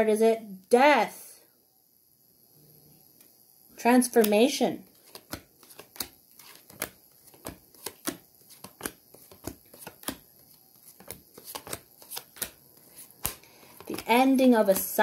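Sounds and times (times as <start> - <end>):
cards being shuffled: 4.2 - 15.0.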